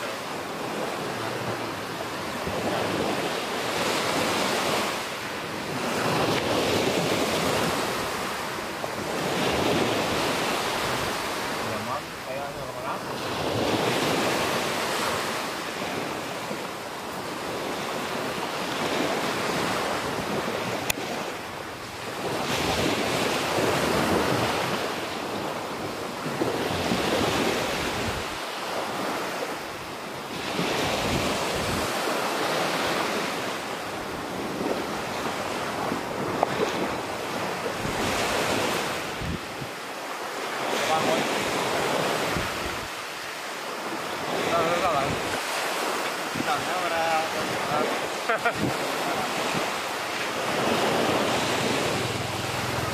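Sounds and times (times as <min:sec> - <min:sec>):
surf breaking on shore: 0:00.0 - 0:52.9
wind buffeting microphone: 0:30.5 - 0:32.2, 0:34.0 - 0:39.9, 0:41.7 - 0:43.0, 0:46.2 - 0:52.9.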